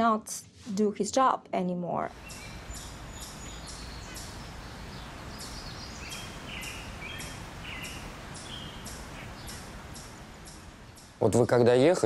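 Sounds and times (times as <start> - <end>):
small birds chirping: 2.1 - 12.0
steady background hiss: 2.1 - 12.0.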